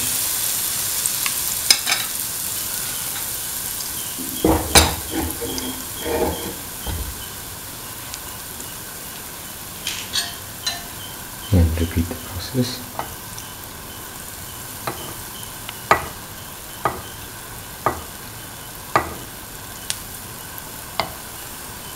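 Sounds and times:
batter sizzling in hot oil: 0.0 - 21.9
knocks: 4.2 - 7.2.

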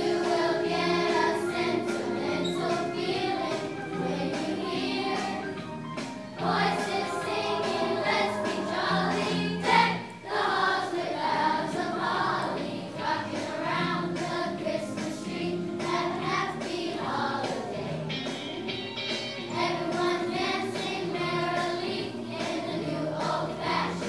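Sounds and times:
children's choir singing: 0.0 - 18.7, 19.4 - 24.0.

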